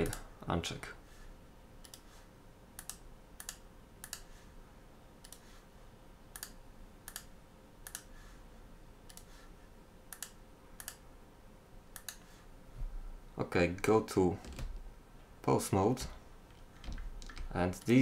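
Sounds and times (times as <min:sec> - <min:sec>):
keyboard and mouse clicks: 0:01.8 - 0:02.1, 0:02.8 - 0:04.3, 0:05.2 - 0:05.5, 0:06.3 - 0:08.1, 0:10.1 - 0:11.0, 0:11.9 - 0:12.3, 0:16.5 - 0:18.0.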